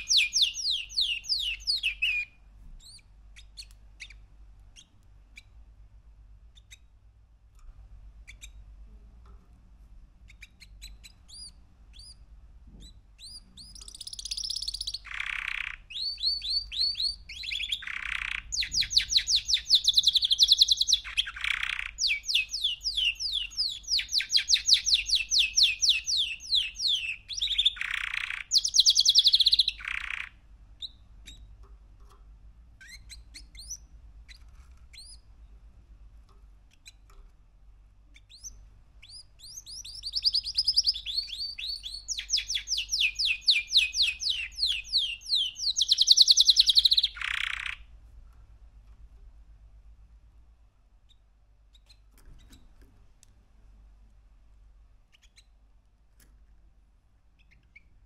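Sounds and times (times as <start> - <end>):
bird chirps: 0.0 - 5.6, 6.5 - 6.9, 8.3 - 8.6, 10.3 - 31.5, 32.8 - 35.3, 38.1 - 47.9, 51.0 - 52.6, 55.0 - 55.6, 57.4 - 58.0
canary singing trilled phrases: 0.0 - 5.7, 6.4 - 7.2, 8.2 - 8.8, 10.2 - 35.4, 36.6 - 37.2, 37.9 - 47.9, 51.0 - 52.7, 54.9 - 55.8, 57.3 - 58.0.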